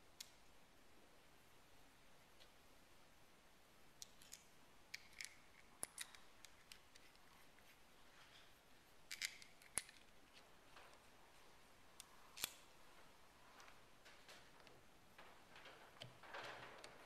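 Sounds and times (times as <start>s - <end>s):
small metal parts clicking: 4.0s - 7.3s, 9.1s - 10.1s.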